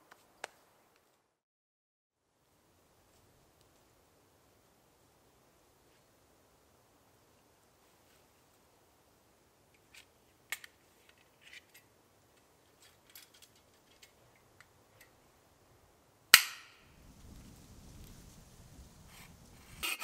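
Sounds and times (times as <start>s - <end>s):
light clicks and rattles: 9.7s - 15.2s
sharp metallic snap: 16.3s - 16.9s.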